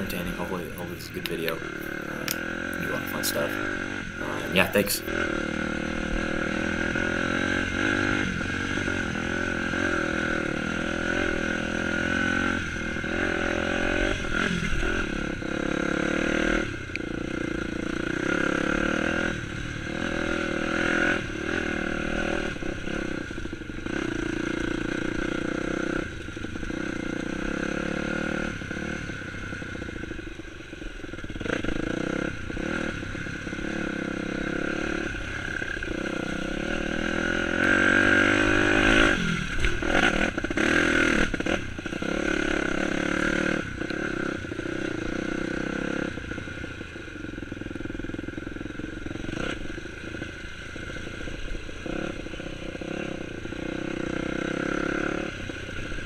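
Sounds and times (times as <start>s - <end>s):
dirt bike engine revving: 0.0s - 26.0s, 31.2s - 46.2s.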